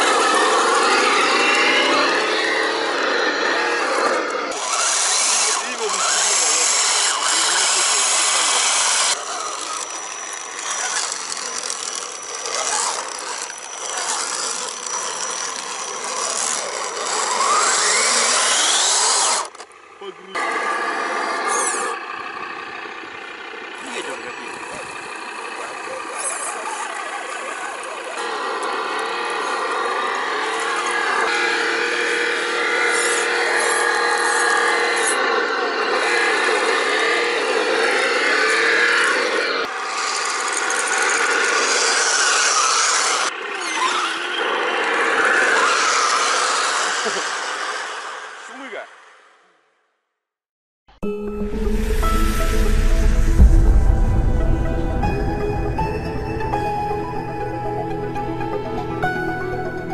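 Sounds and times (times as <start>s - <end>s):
wheels spinning through mud: 0.0s - 31.3s
electric motor and drivetrain whining: 0.0s - 48.4s
thin high whine: 51.0s - 59.9s.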